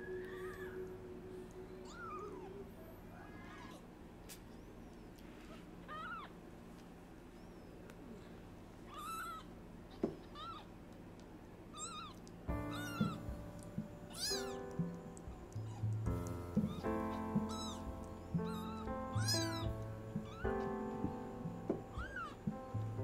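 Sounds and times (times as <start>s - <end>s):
background music: 0.0s - 3.0s, 12.5s - 23.0s
kitten mewing: 1.8s - 4.4s, 8.9s - 10.7s, 11.8s - 22.5s.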